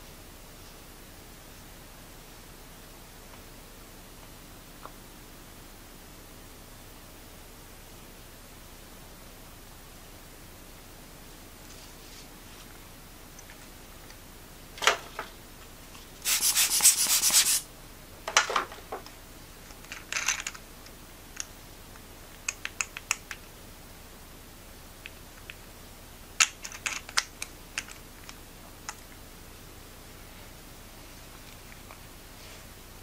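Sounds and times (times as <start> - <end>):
scratchy rubbing: 16.2 - 17.6.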